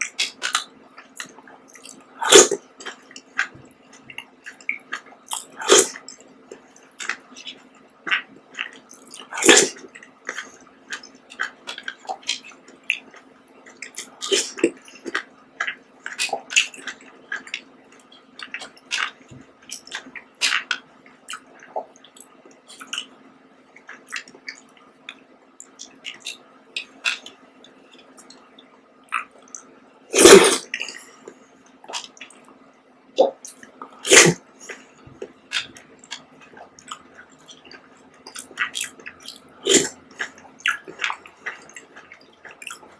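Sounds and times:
wet slurping and chewing: 0:00.2 - 0:23.1, 0:33.2 - 0:42.9.

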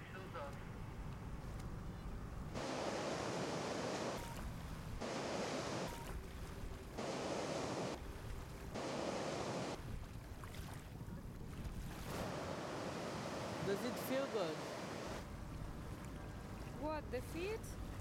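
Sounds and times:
sea surf washing on beach: 0:02.6 - 0:10.9, 0:11.6 - 0:15.3.

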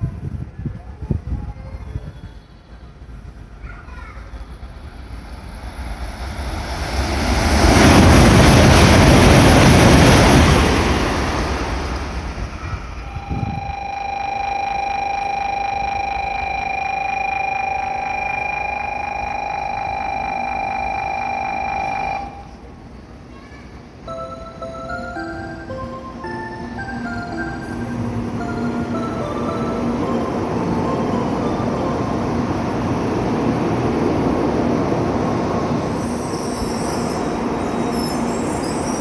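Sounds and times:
train passing with rushing roar: 0:00.0 - 0:39.0
steady high electronic tone: 0:13.0 - 0:22.6, 0:24.1 - 0:33.6.

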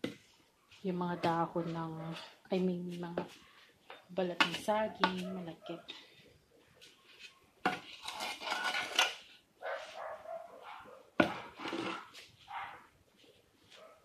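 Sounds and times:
trowel scraping soil: 0:07.2 - 0:09.3, 0:11.4 - 0:12.3.

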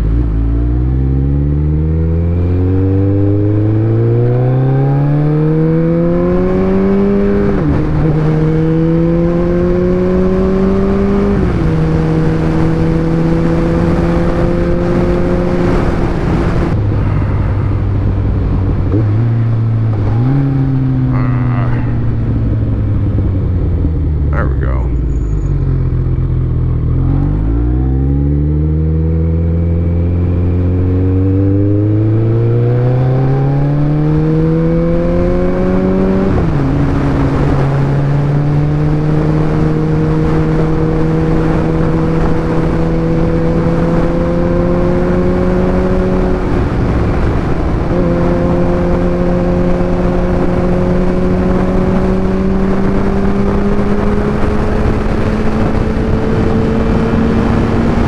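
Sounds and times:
motorcycle engine revving: 0:00.0 - 0:58.0
wind rush: 0:11.1 - 0:58.0.

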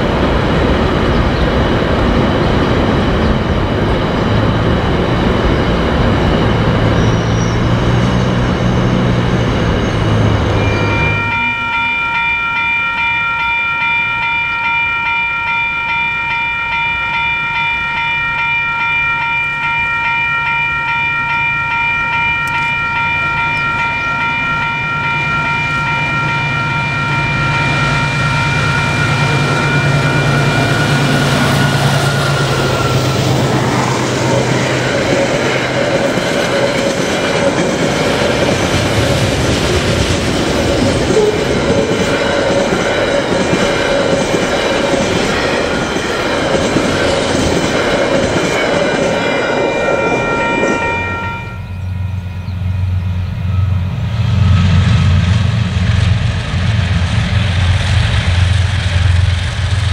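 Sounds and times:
locomotive diesel engine drone: 0:00.0 - 0:11.9, 0:22.3 - 0:48.4, 0:51.6 - 0:59.9
train wagons rumbling and clattering: 0:00.0 - 0:59.9
high ringing tone: 0:06.7 - 0:36.5, 0:40.8 - 0:55.8.

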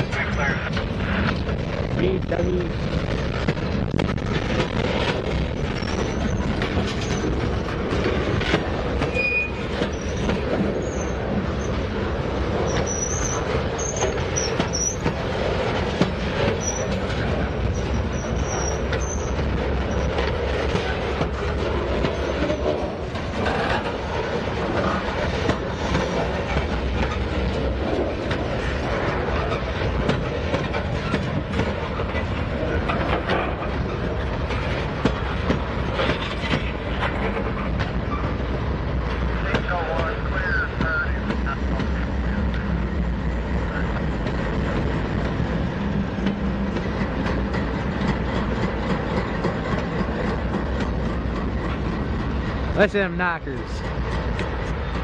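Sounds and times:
wheels clacking over rail joints: 0:02.3 - 0:52.9, 0:53.7 - 0:55.0
high wheel squeal: 0:09.1 - 0:11.7, 0:12.7 - 0:15.0, 0:16.6 - 0:17.0, 0:17.7 - 0:20.1.

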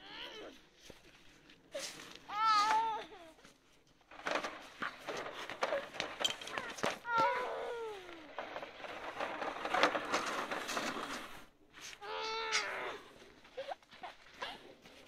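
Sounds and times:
scraping and crunching on snow: 0:00.1 - 0:03.0, 0:06.6 - 0:15.0
child crying out: 0:02.3 - 0:03.4, 0:06.6 - 0:08.3, 0:12.0 - 0:13.1.

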